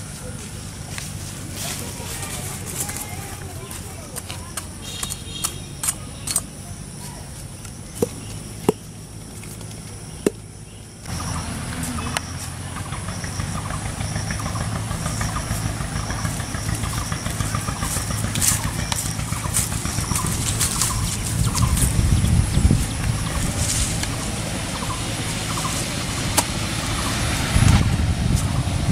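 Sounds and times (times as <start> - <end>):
outdoor rumble with low hum: 0.0 - 28.9
knife striking coconut: 26.3 - 26.6.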